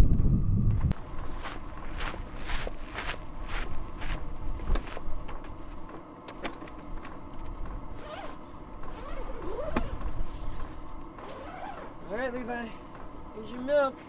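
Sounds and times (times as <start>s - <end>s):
footsteps: 0.9s - 6.1s
short wavering squeaks: 7.9s - 10.6s, 11.2s - 12.1s
zipper being pulled: 7.9s - 12.0s.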